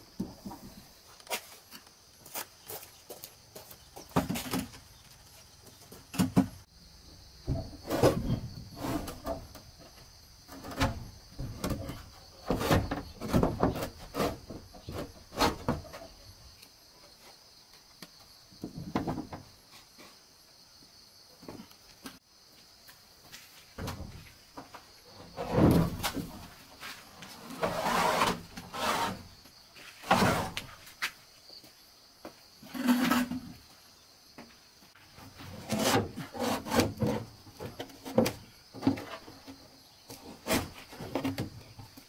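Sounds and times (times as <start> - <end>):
insect drone: 0.0 - 42.0
roofing sheets scraping on wood: 7.8 - 9.6, 10.5 - 16.1, 25.3 - 31.0, 32.6 - 33.5, 35.4 - 39.4.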